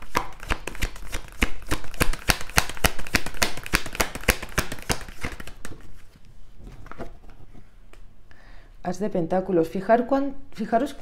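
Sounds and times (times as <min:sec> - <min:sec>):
playing cards being shuffled: 0:00.0 - 0:07.3.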